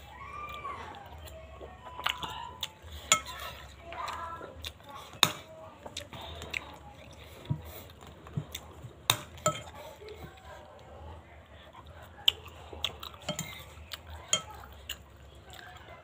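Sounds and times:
chewing: 0:00.0 - 0:16.0
spoon clinking in ceramic bowl: 0:13.3 - 0:13.6.

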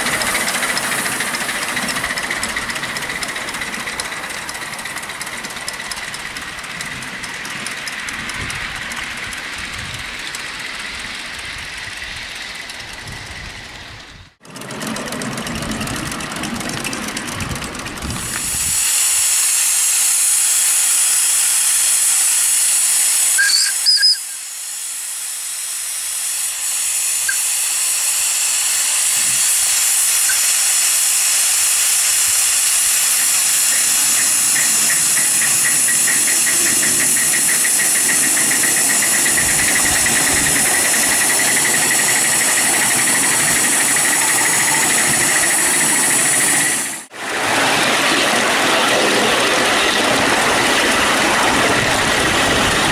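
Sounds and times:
fast pulsing: 0:00.0 - 0:18.7, 0:28.7 - 0:47.1
steam locomotive hissing: 0:00.0 - 0:52.9
high whistle toot: 0:23.3 - 0:24.6.

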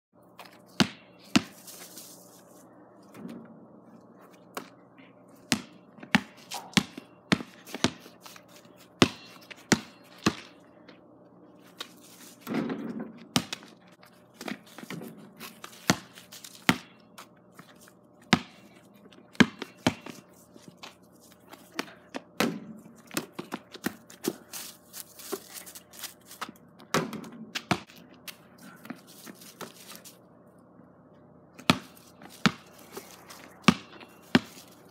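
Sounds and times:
basketball bouncing on hard dirt: 0:00.7 - 0:01.6, 0:05.5 - 0:08.0, 0:09.0 - 0:10.6, 0:12.4 - 0:13.7, 0:14.4 - 0:17.0, 0:17.6 - 0:18.6, 0:19.3 - 0:20.8, 0:21.6 - 0:24.4, 0:26.4 - 0:28.0, 0:31.6 - 0:34.9
ball striking backboard and rim: 0:00.8 - 0:01.5, 0:05.5 - 0:08.0, 0:09.0 - 0:10.6, 0:19.3 - 0:20.1, 0:22.4 - 0:22.8, 0:26.9 - 0:27.9, 0:31.6 - 0:32.7, 0:33.6 - 0:34.6.

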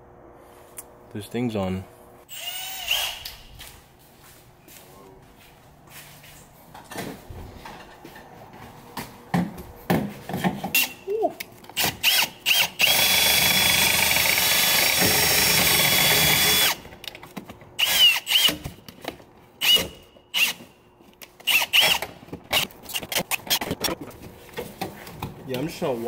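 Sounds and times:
cordless drill spinning: 0:02.3 - 0:03.4, 0:11.8 - 0:16.8, 0:17.8 - 0:18.6, 0:19.6 - 0:20.6, 0:21.4 - 0:22.1.

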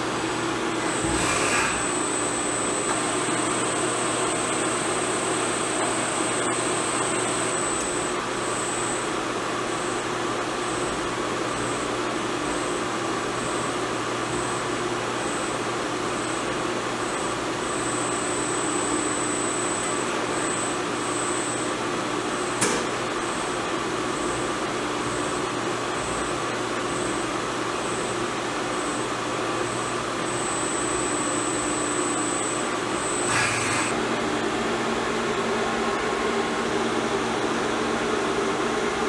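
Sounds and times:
high machine whine: 0:00.0 - 0:39.0
steady milling machine noise: 0:00.0 - 0:39.0
sharp click: 0:22.6 - 0:22.9.

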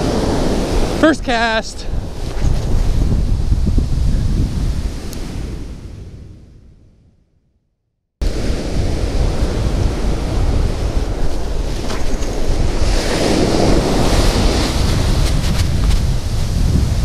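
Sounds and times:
ocean surf breaking on beach: 0:00.0 - 0:06.2, 0:08.2 - 0:17.0
wind rumbling on microphone: 0:00.0 - 0:07.4, 0:08.2 - 0:17.0.

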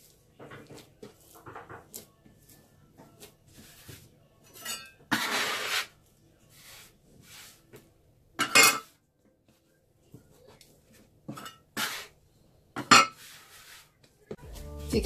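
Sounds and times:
hands kneading dough: 0:00.0 - 0:04.6
bench scraper scraping board: 0:05.1 - 0:05.9, 0:11.8 - 0:12.2.

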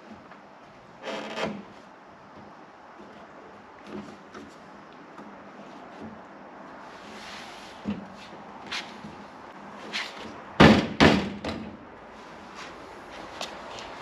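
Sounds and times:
loud thumps on car door: 0:10.6 - 0:11.7.

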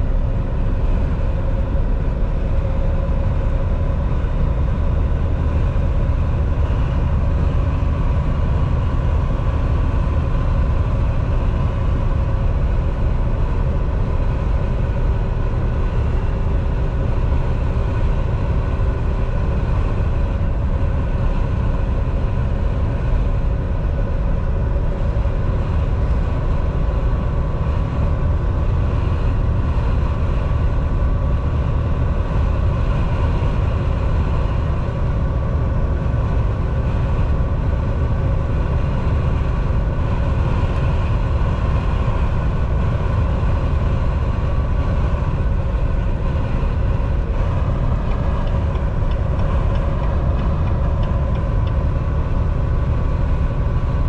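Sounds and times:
faint steady whine: 0:00.0 - 0:54.0
truck engine and road drone: 0:00.0 - 0:54.0.

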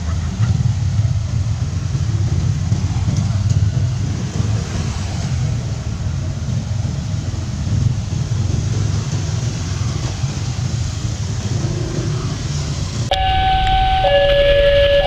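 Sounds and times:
engines rumbling: 0:00.0 - 0:15.0
tyre hiss on wet road: 0:00.8 - 0:13.1
level crossing warning alarm: 0:13.1 - 0:15.0.

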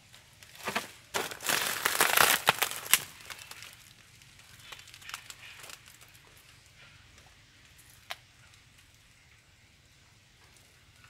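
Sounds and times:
dry leaf litter crackling: 0:00.0 - 0:06.9.

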